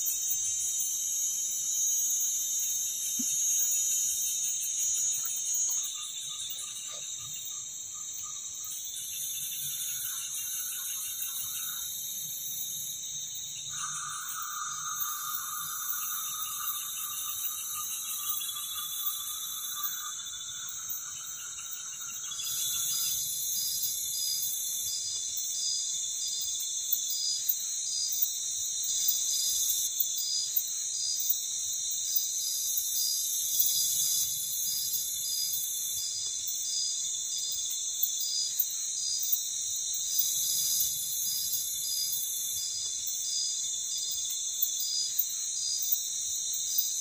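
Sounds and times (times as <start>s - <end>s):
crickets and insects trilling: 0.0s - 47.0s
pulsing insect call: 0.0s - 47.0s.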